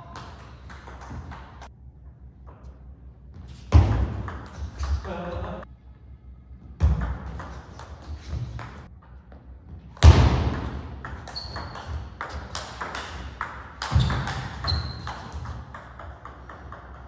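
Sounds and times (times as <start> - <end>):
short high squeak: 11.3 - 11.9.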